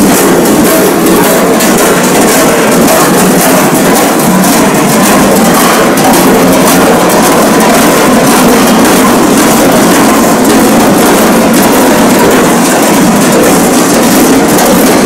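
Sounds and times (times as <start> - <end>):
large bells clanging: 0.0 - 15.0.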